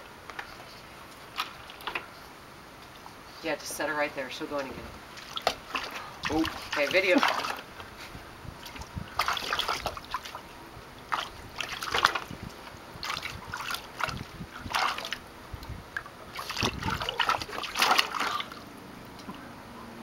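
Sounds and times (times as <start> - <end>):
dog splashing in water: 5.1 - 7.7, 8.6 - 10.4, 11.0 - 12.3, 13.0 - 15.2, 16.3 - 18.6.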